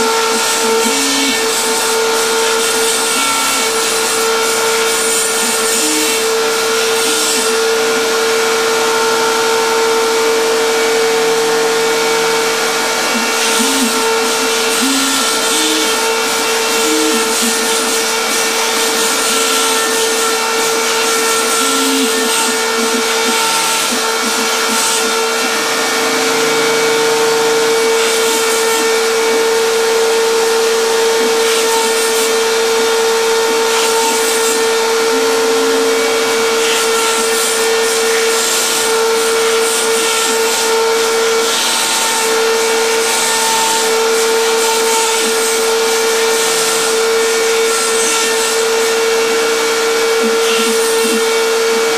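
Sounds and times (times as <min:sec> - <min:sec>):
router spindle high whine: 0:00.0 - 0:51.9
drive motors low tones: 0:12.8 - 0:31.4, 0:34.7 - 0:36.6.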